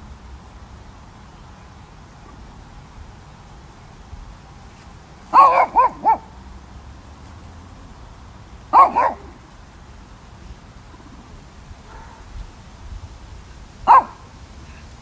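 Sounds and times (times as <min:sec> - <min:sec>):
small dog barking: 0:05.3 - 0:06.3, 0:08.7 - 0:09.4, 0:11.8 - 0:12.3, 0:13.8 - 0:14.3.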